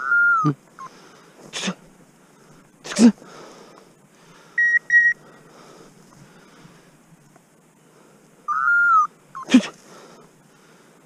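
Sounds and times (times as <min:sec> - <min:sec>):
short electronic beeps: 0:04.6 - 0:05.2.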